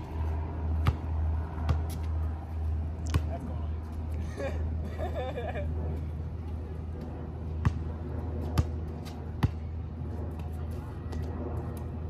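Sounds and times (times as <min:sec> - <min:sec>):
steady low hum: 0:00.0 - 0:12.0
basketball bouncing on hard court: 0:00.8 - 0:02.1, 0:07.6 - 0:07.8, 0:09.4 - 0:09.7.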